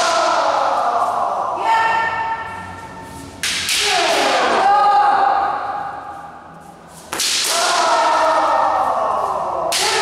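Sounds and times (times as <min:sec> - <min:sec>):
bamboo sword cracking on armour: 0:07.1 - 0:07.9
people yelling: 0:07.4 - 0:10.0.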